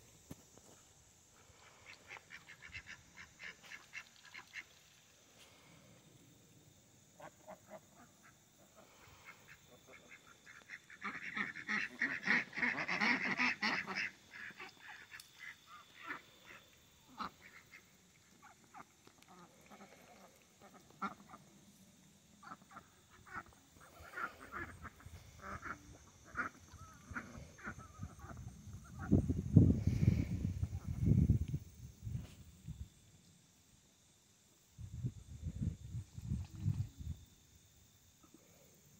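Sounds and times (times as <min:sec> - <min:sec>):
ducks quacking: 0:01.7 - 0:04.7, 0:09.0 - 0:21.5, 0:22.4 - 0:29.2.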